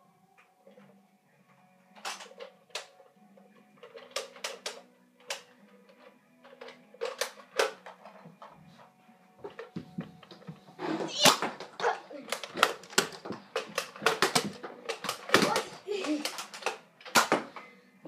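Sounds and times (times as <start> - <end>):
toy blaster clacks and knocks: 2.0 - 2.9, 3.8 - 8.0, 11.2 - 17.5.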